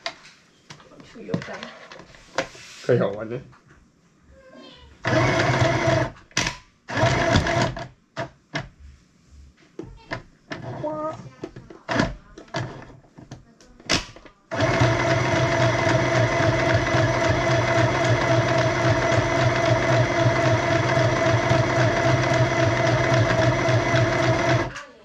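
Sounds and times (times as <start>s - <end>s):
sewing machine stitching: 5.0s - 6.2s, 6.9s - 7.9s, 10.5s - 11.2s, 11.9s - 13.0s, 14.5s - 24.9s.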